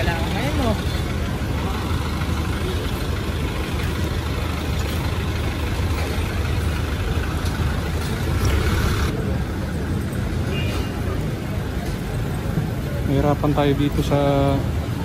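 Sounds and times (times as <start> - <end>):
engine idling: 0.0 - 10.2
road traffic noise: 0.0 - 15.0.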